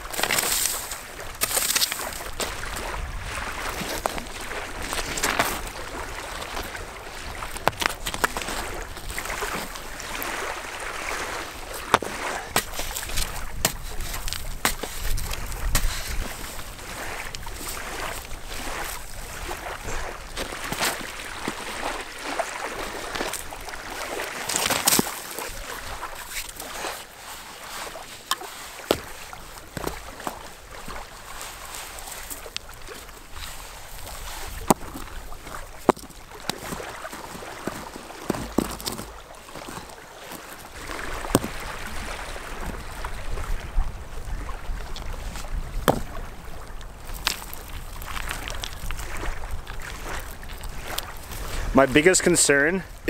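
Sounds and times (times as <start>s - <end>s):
tool scraping through gravel: 0.0s - 2.2s, 11.8s - 16.7s
rocks clacking: 0.0s - 10.6s, 11.2s - 22.1s, 22.8s - 26.8s, 27.9s - 43.1s, 44.9s - 53.0s.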